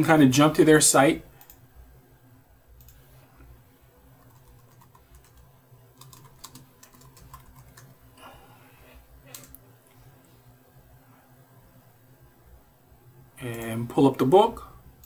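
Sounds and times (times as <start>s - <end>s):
faint keyboard typing: 1.3s - 1.7s, 2.7s - 3.5s, 4.1s - 8.1s, 9.2s - 10.0s, 13.4s - 13.8s.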